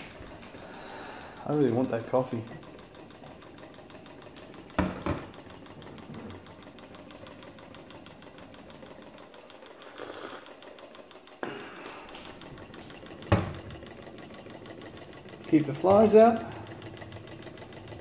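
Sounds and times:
stirling engine ticking clatter: 0:12.2 - 0:18.0.

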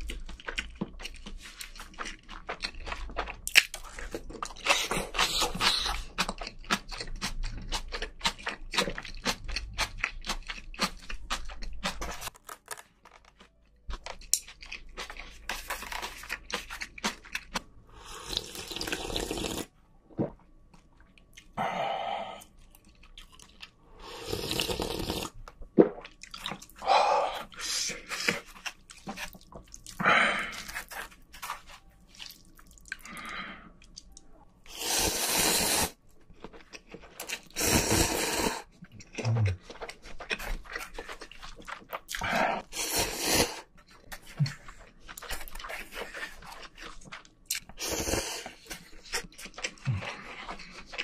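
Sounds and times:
wet slurping of noodles: 0:18.0 - 0:19.7, 0:24.0 - 0:25.3, 0:34.7 - 0:36.0, 0:37.6 - 0:38.6, 0:42.6 - 0:43.6.

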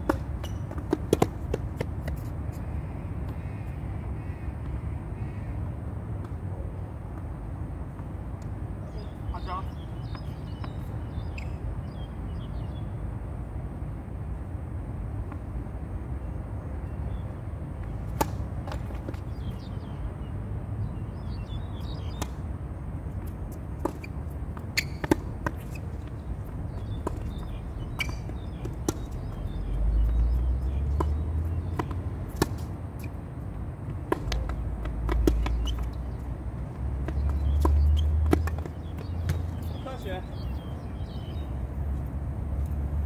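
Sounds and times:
racket striking tennis ball: 0:00.0 - 0:02.3, 0:18.0 - 0:19.2, 0:23.8 - 0:26.0, 0:31.0 - 0:33.2, 0:34.0 - 0:36.0, 0:37.0 - 0:39.5
tennis ball bouncing: 0:00.0 - 0:02.3, 0:17.8 - 0:19.4, 0:21.9 - 0:22.4, 0:23.1 - 0:39.8.

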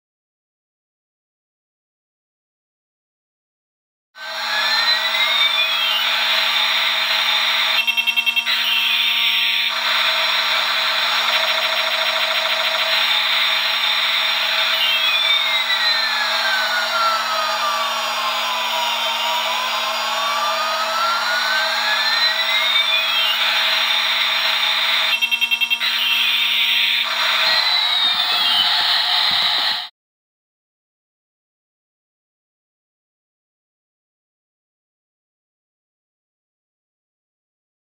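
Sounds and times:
toy jet engine sound effect: 0:04.2 - 0:29.9
rapid electronic stutter: 0:04.3 - 0:29.9.

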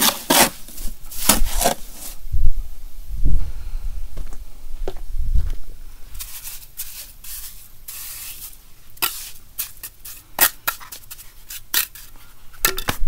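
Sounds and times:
trowel scraping mortar: 0:00.0 - 0:02.2, 0:06.2 - 0:12.3.

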